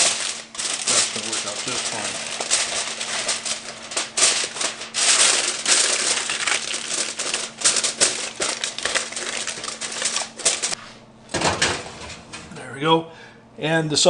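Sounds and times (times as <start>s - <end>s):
aluminium foil crinkling: 0.0s - 10.8s.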